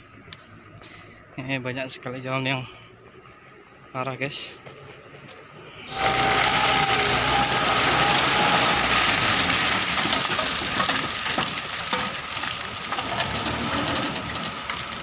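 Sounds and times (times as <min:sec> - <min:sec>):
rocks pouring from truck: 0:05.8 - 0:15.0
truck engine running: 0:05.9 - 0:15.0.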